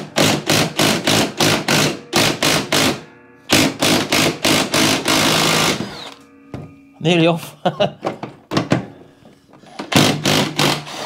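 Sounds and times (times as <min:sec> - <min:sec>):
impact gun hammering: 0:00.0 - 0:06.0.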